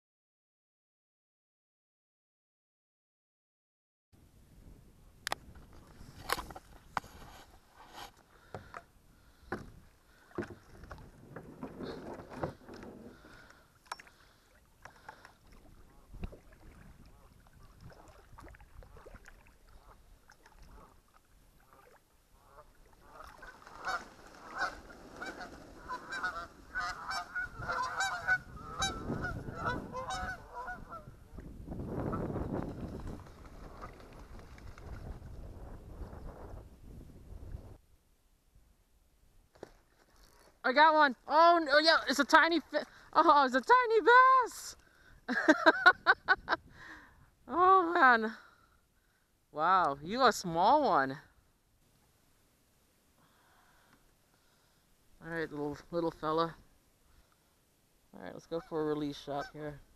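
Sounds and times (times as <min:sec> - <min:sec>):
low rush of wind or water: 0:04.2 - 0:59.9
geese honking: 0:22.4 - 0:31.1, 0:58.4 - 0:59.8.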